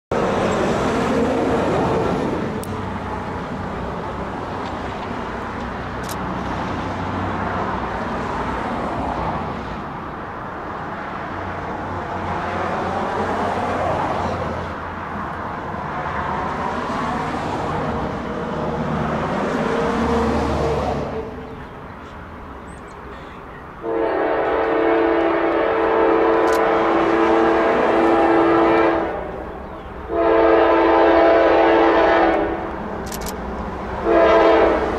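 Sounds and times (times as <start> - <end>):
locomotive air horn blast: 23.8 - 29.5, 30.1 - 32.7, 34.0 - 34.9.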